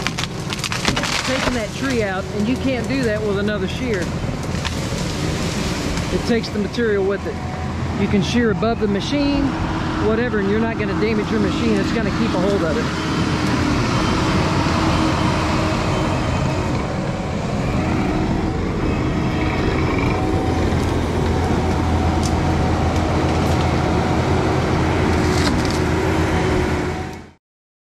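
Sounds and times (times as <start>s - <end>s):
sharp cracks: 0.0s - 2.0s
diesel engine under load: 0.0s - 27.4s.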